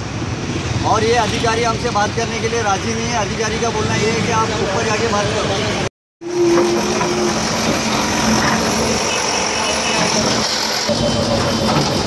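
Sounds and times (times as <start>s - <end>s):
diesel engine running steadily: 6.6s - 12.0s.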